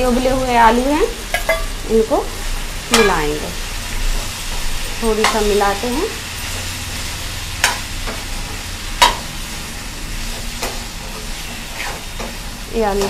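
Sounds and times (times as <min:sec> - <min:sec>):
frying sizzle: 0:00.0 - 0:13.0.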